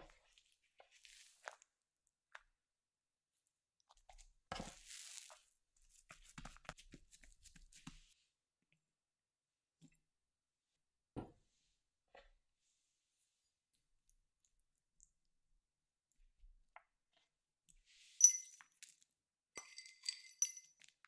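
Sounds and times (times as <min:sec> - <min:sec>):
dough being folded by hand: 0:03.9 - 0:08.2.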